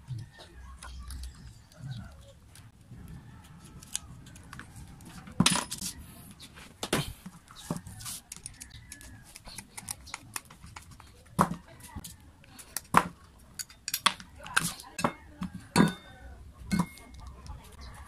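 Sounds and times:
metal tools clinking on tabletop: 0:13.6 - 0:14.2, 0:16.7 - 0:17.2.

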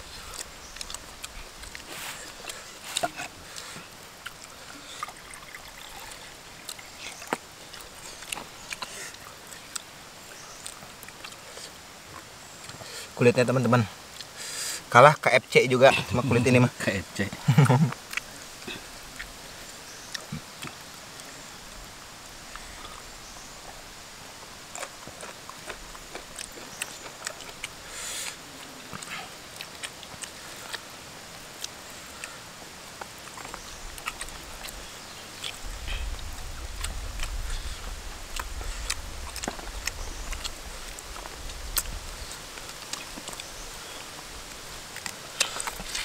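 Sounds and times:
steady hiss: 0:00.0 - 0:46.0
chewing and lip smacks: 0:00.2 - 0:09.9, 0:10.6 - 0:12.9, 0:24.7 - 0:32.4, 0:33.0 - 0:44.2, 0:44.9 - 0:46.0.

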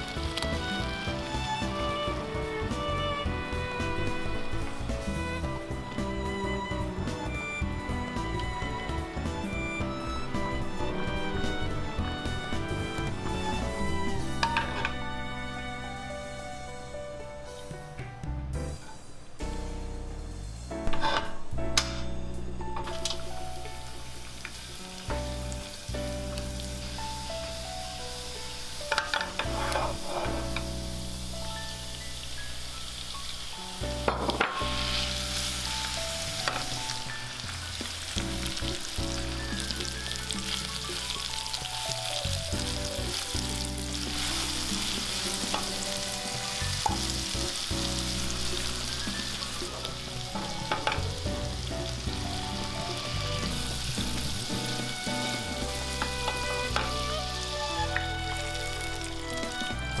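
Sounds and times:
food sizzling in a frying pan: 0:00.0 - 0:02.7, 0:22.8 - 1:00.0
light background music: 0:00.0 - 1:00.0.

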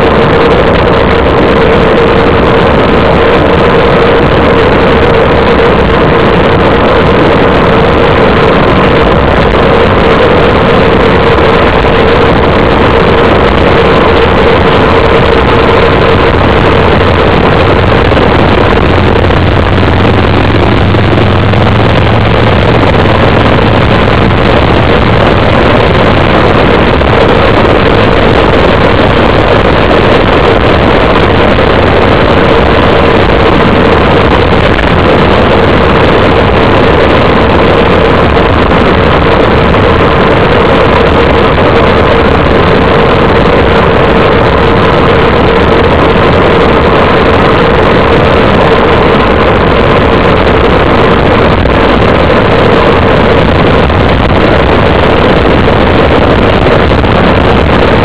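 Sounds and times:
wind noise on microphone: 0:00.0 - 0:58.0.

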